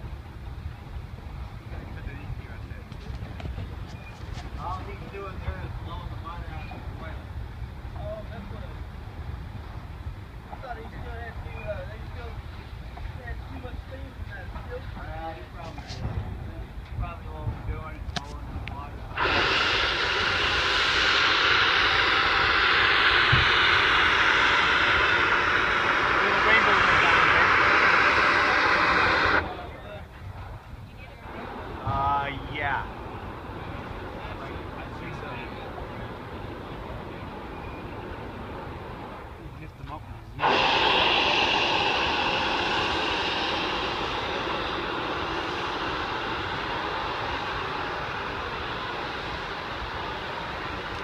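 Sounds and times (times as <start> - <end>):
steam locomotive hissing: 18.4 - 51.0.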